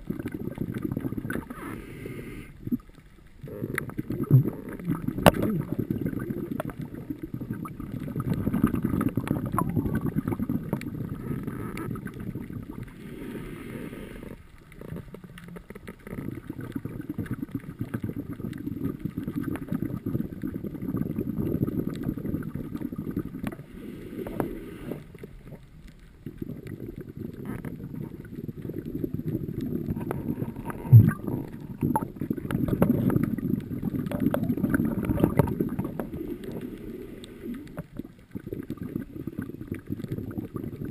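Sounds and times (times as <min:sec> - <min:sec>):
exhaled bubbles underwater: 0:00.0 - 0:40.9
inhalation hiss: 0:01.5 - 0:02.6, 0:12.9 - 0:14.4, 0:23.5 - 0:25.1, 0:36.1 - 0:37.8.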